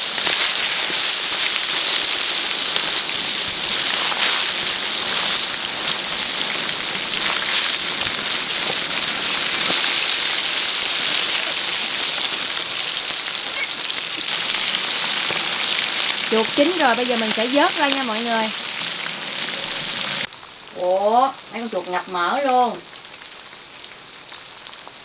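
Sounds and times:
meat deep-frying in oil: 0.0 - 25.0.

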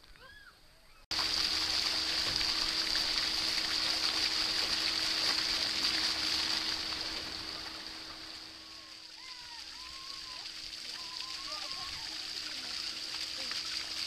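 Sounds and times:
steady hum: 1.1 - 9.2
water spraying with rushing hiss: 1.1 - 14.0.

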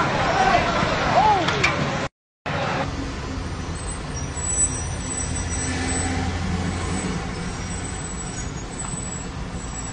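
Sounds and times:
road traffic rumble: 0.0 - 9.9.

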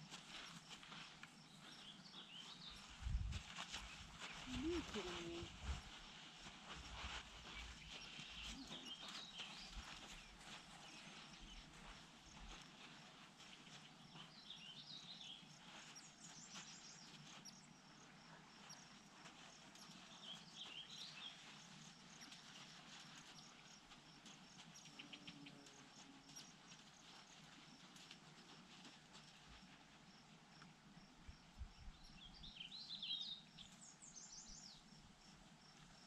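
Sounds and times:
faint chirping: 6.7 - 27.8.

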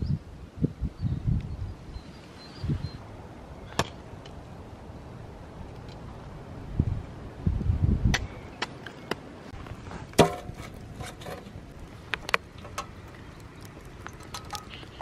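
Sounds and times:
wood fire crackling: 9.5 - 15.0
sharp pops from burning logs: 10.1 - 15.0.

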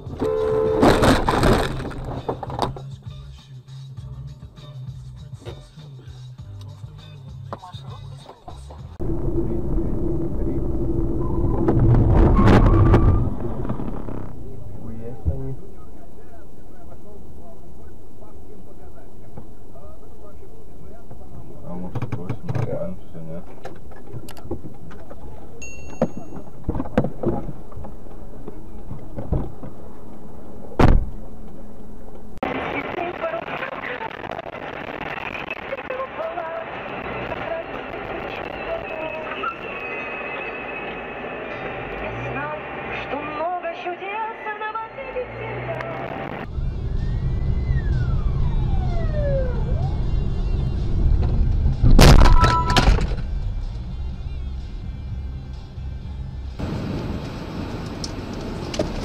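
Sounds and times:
low road rumble: 0.0 - 59.0
car crash crunch: 0.1 - 2.8, 9.0 - 15.5, 26.1 - 32.2, 51.2 - 53.4
car cabin rumble: 8.5 - 32.4
car brakes squealing: 11.1 - 14.3, 52.2 - 53.1.

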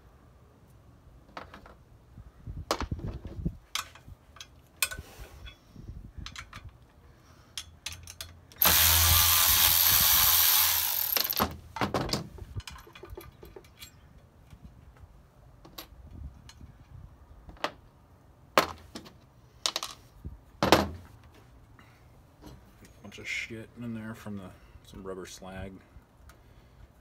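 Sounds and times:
power ratchet running: 8.6 - 11.4.

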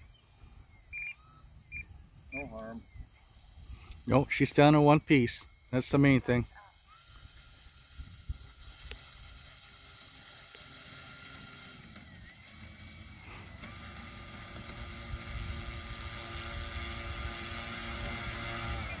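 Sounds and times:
model plane electric motor whine: 5.4 - 19.0.

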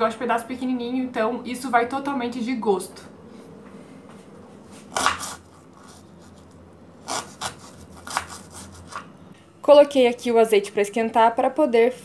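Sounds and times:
knife slicing onion on board: 4.7 - 9.1.

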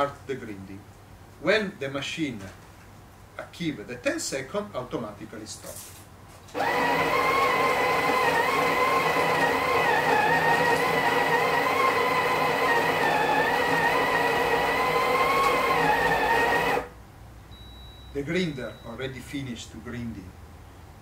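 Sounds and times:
coffee grinder whining: 6.5 - 16.9.

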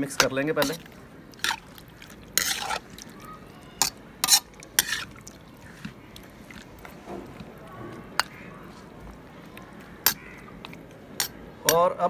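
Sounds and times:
metal ladle scraping a metal pot: 2.3 - 3.0, 3.8 - 5.2.

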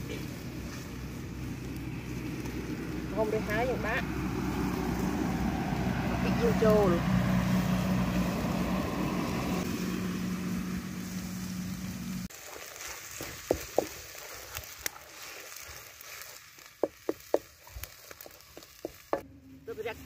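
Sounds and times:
paste frying in wok: 9.5 - 19.2.

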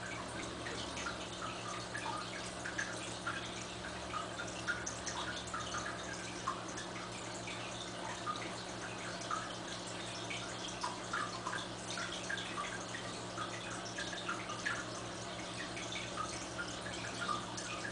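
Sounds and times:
aquarium water bubbling: 0.0 - 17.9
steady low hum: 0.0 - 17.9
water dripping plinks: 0.0 - 17.9.

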